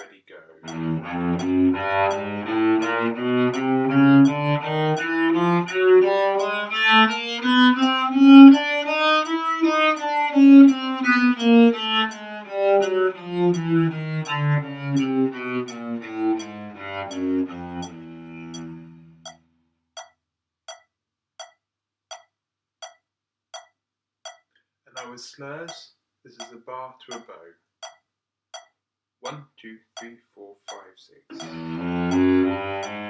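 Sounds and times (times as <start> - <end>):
cello playing a scale: 0.6 - 19.4, 31.3 - 33.0.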